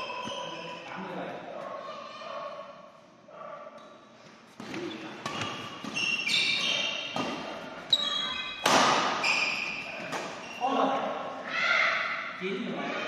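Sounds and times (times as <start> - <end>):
shoes squeaking on court: 0.0 - 1.1, 4.5 - 11.0
racket striking shuttlecock: 8.6 - 9.2.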